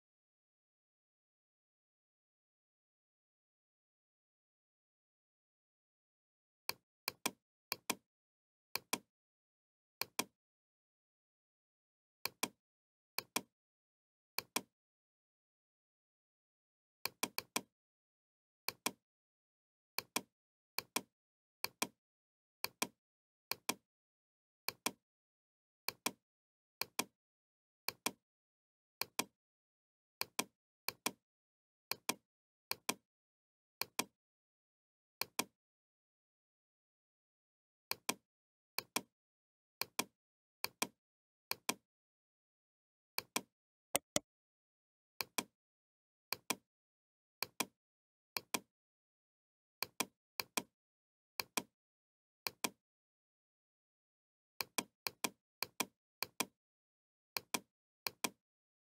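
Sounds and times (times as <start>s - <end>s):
computer mouse clicking: 43.3s - 44.2s.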